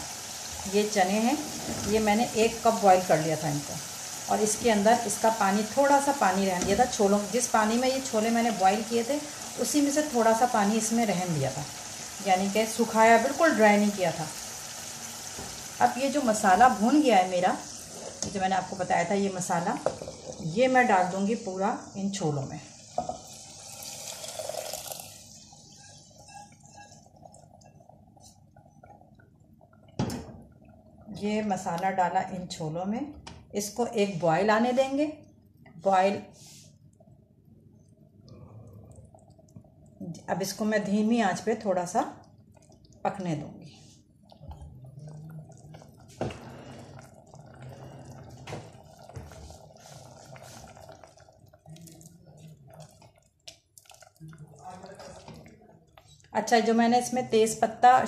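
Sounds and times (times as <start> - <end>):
hissing sizzle: 0.0 - 32.2, 38.7 - 58.0
curry bubbling in a pot: 0.0 - 32.3, 34.6 - 57.9
spatula stirring sauce: 25.2 - 29.0, 42.4 - 56.3
wet bubbling and small pops: 27.3 - 31.9, 37.8 - 40.2, 41.9 - 56.4.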